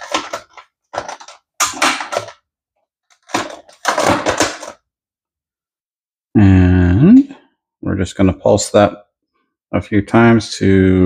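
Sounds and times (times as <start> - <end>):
plastic lid scraping and clicking: 0.0 - 2.4, 3.1 - 4.8.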